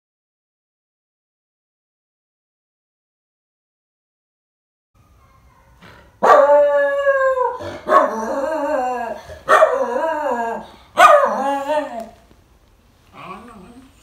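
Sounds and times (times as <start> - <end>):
dog howling: 5.0 - 12.2.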